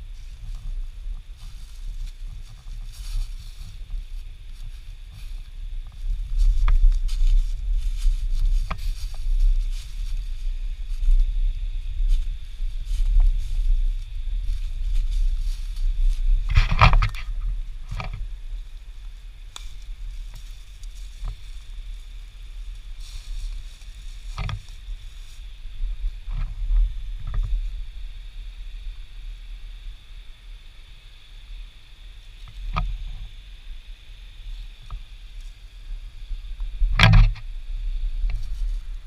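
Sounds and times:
footsteps through dry leaves: 0.0 - 29.0, 34.5 - 39.0
brush rustling: 0.0 - 39.0
low rumble: 0.0 - 39.0
twig snaps: 19.5 - 19.9.

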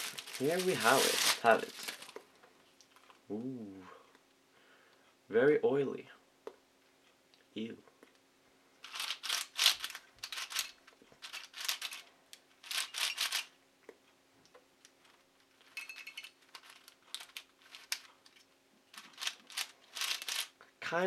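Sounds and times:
plastic puzzle pieces clicking: 8.9 - 12.0, 12.6 - 13.5, 16.1 - 20.5.

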